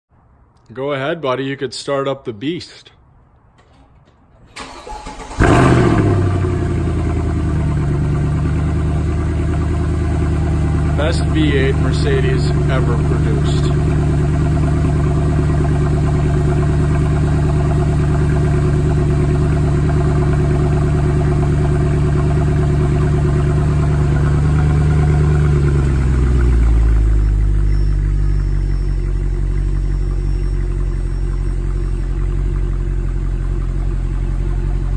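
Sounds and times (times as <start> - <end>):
car engine idling: 3.6 - 34.9.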